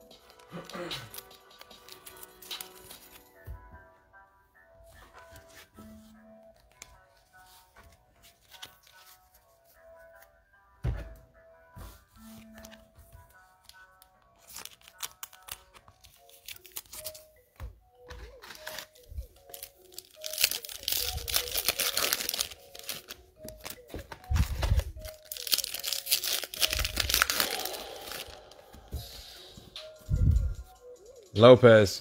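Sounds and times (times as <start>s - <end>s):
quiet background music: 0.0s - 32.0s
foil wrapper tearing and crinkling: 13.6s - 17.2s, 18.4s - 23.8s, 24.4s - 28.4s.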